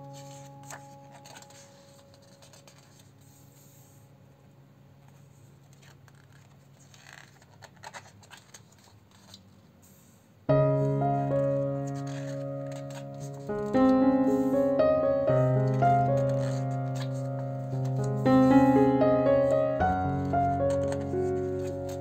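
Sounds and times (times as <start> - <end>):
paper pages rustling: 0.0 - 3.9, 5.0 - 9.7, 10.7 - 22.0
soft piano music: 0.0 - 5.0, 10.5 - 22.0.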